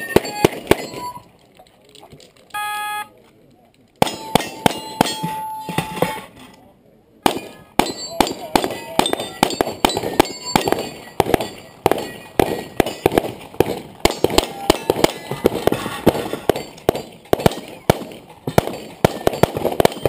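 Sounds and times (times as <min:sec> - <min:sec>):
pistol shots: 0:00.0 - 0:01.2, 0:07.2 - 0:20.0
bullets ringing on steel targets: 0:00.0 - 0:01.3, 0:04.0 - 0:06.2, 0:07.2 - 0:20.0.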